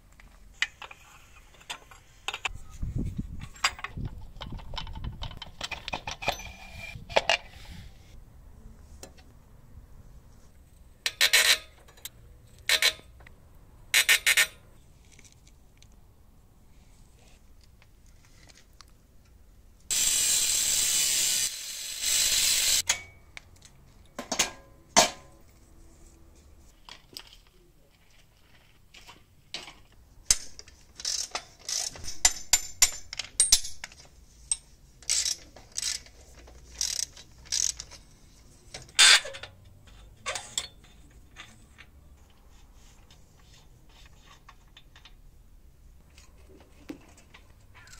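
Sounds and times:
loud steady hiss: 19.9s - 22.9s
ratchet wrench clicking: 19.9s - 22.9s, 35.0s - 37.9s.

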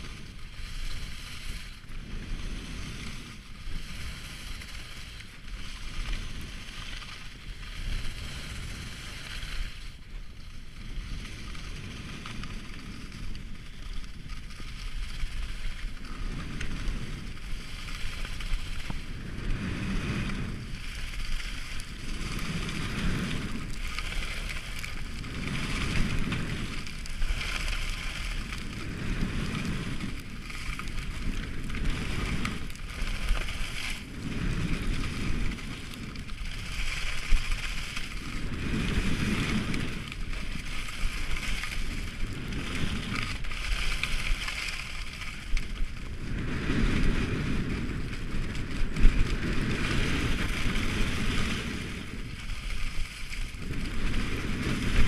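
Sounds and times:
skis scraping over packed snow: 0.0s - 55.0s
wind rushing over microphone: 0.0s - 55.0s.

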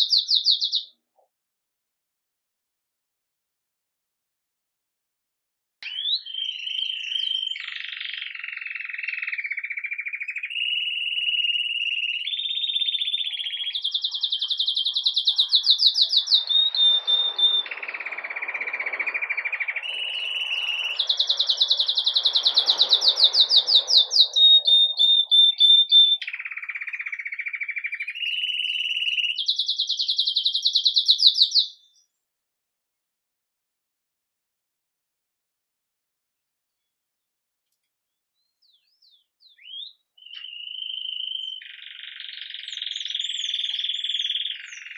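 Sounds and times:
canary singing: 0.0s - 1.0s, 5.8s - 32.0s, 38.6s - 44.9s.

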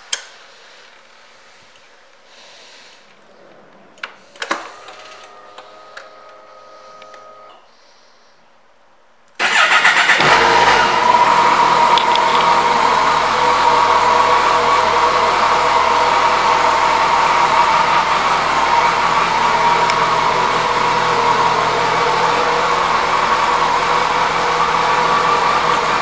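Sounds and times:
electric hum: 3.8s - 7.6s.

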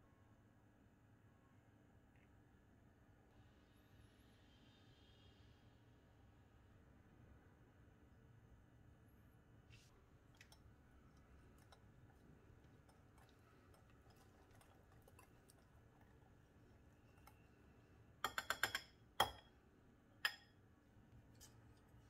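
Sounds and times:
stirring paste in glass bowl: 10.0s - 19.6s
utensils knocking glass bowl: 18.2s - 19.5s.

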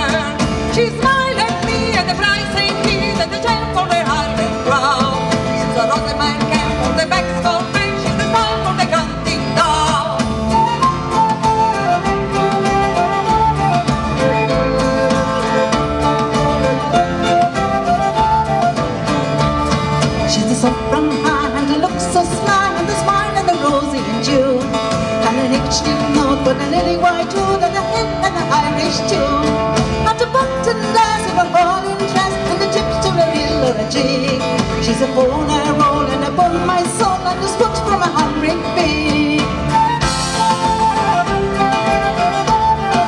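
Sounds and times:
fiddle: 0.0s - 43.0s
live folk band through a pa: 0.0s - 43.0s
strummed acoustic guitars: 0.0s - 43.0s.

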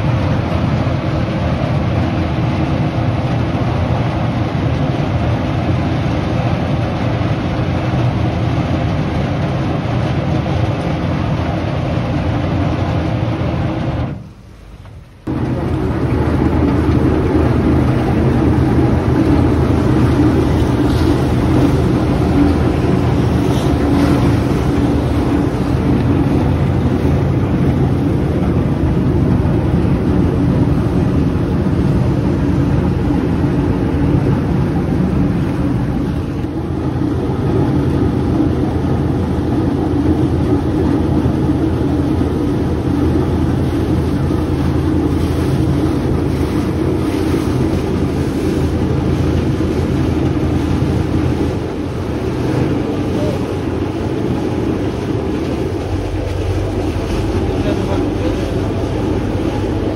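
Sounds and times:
boat engine running: 0.0s - 59.9s
water rushing past hull: 0.0s - 59.9s
wind on microphone: 15.2s - 59.9s.

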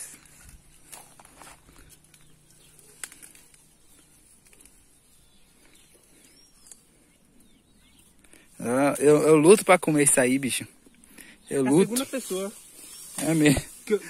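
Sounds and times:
roots clicking and snapping: 0.0s - 9.4s
faint bird chirp: 0.0s - 14.0s
soil rustling: 0.0s - 14.0s.

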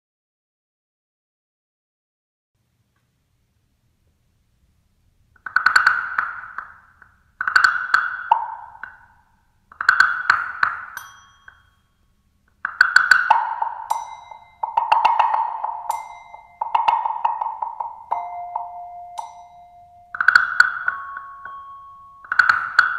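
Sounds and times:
wooden blocks struck with sticks: 5.4s - 11.8s, 12.5s - 22.9s.

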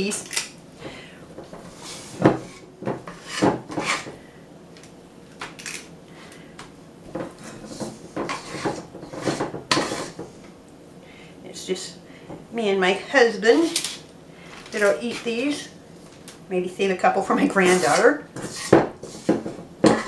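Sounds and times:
metal scoop scraping steel bowl: 17.4s - 20.0s.

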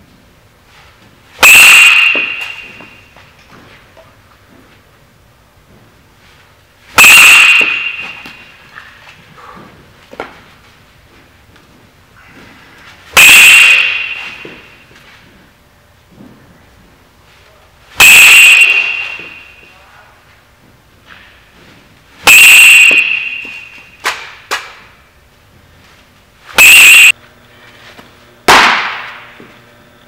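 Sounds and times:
metal bat hitting ball: 1.8s - 3.1s, 7.2s - 8.6s, 13.6s - 14.8s, 28.4s - 29.4s.

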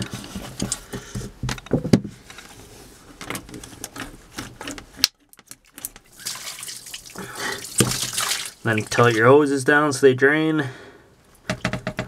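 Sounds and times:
hose clamps clicking and knocking: 3.2s - 6.1s.

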